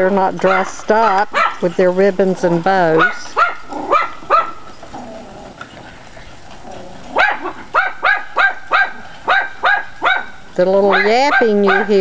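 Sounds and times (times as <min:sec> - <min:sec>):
dog yapping: 0:00.4 - 0:01.6, 0:03.0 - 0:05.1, 0:05.8 - 0:12.0.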